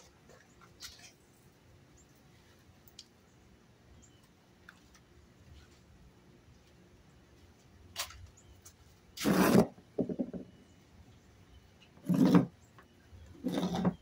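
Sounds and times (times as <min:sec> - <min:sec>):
metal can scraping on table: 0:09.2 - 0:09.7, 0:12.0 - 0:12.6, 0:13.4 - 0:14.0.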